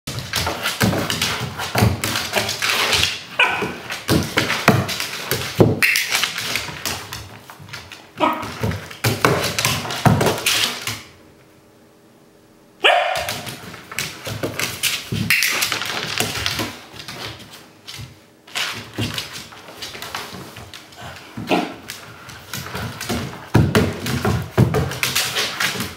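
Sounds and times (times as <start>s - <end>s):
dog barking and whining: 3.3s - 3.8s, 8.2s - 8.6s, 12.8s - 13.5s.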